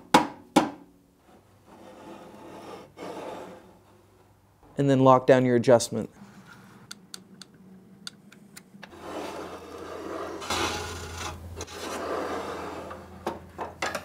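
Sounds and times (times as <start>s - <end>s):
steel rule scraping metal: 1.3s - 3.8s, 8.9s - 13.0s.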